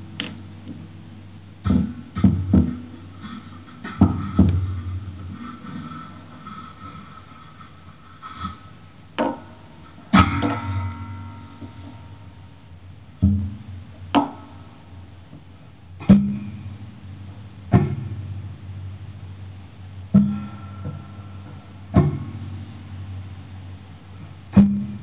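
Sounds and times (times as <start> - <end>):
plucked spring twangs: 10.1 - 12.4.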